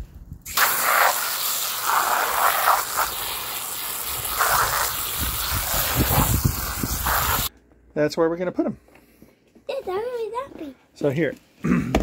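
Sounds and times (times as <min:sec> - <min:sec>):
water spraying into a container: 0:00.5 - 0:07.5.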